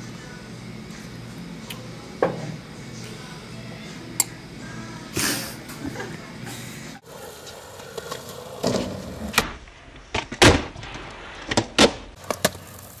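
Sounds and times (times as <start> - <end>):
skateboard wheels rolling on concrete: 7.0 - 13.0
skateboard clacks: 11.4 - 13.0.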